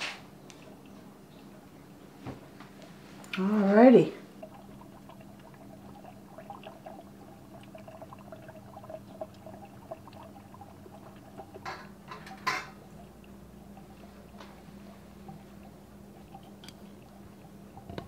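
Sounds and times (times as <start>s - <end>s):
jars bubbling and popping: 0.3s - 2.6s, 3.2s - 18.0s.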